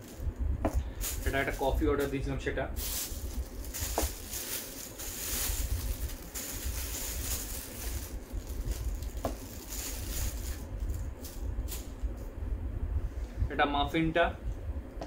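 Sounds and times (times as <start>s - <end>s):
low rumble: 0.0s - 13.5s
plastic bag rustling: 0.8s - 12.1s.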